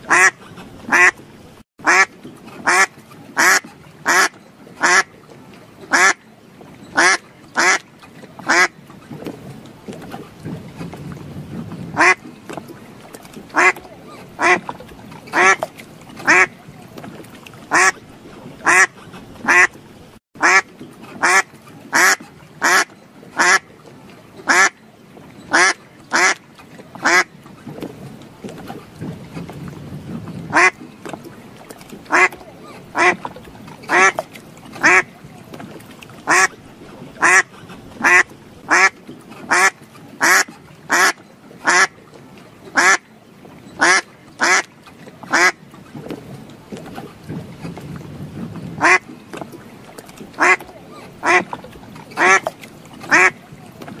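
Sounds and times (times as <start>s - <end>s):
duck quacking: 0.1s - 1.1s, 1.8s - 5.1s, 5.9s - 6.2s, 7.0s - 7.8s, 12.0s - 12.2s, 13.5s - 13.8s, 14.4s - 14.7s, 16.3s - 16.5s, 17.7s - 18.0s, 18.6s - 19.7s, 20.4s - 20.6s, 21.2s - 23.6s, 25.5s - 26.4s, 30.5s - 30.8s, 32.1s - 32.4s, 33.0s - 33.2s, 34.8s - 35.1s, 36.3s - 36.5s, 37.2s - 38.9s, 39.5s - 41.9s, 43.8s - 44.6s, 48.8s - 49.0s, 50.4s - 50.6s, 51.2s - 51.5s, 52.2s - 52.4s, 53.1s - 53.4s.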